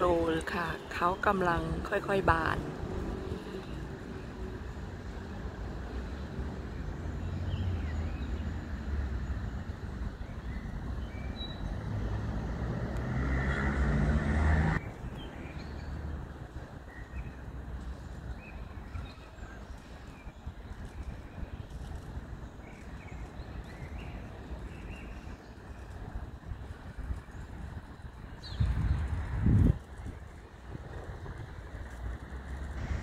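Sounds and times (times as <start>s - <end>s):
vehicle passing: 11.8s - 14.9s.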